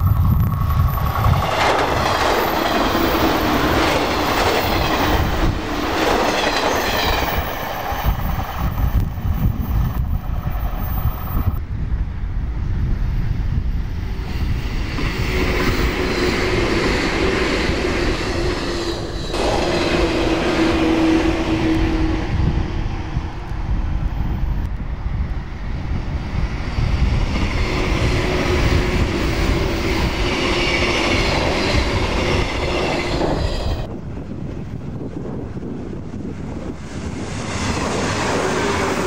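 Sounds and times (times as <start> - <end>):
steel wheels running over rails: 0.0 - 11.6
electric train passing at speed: 0.0 - 39.0.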